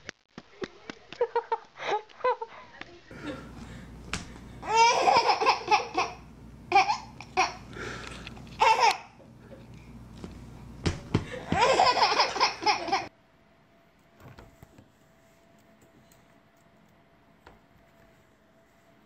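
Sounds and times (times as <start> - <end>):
baby laughing: 4.6 - 7.7, 8.6 - 9.2, 11.3 - 13.1.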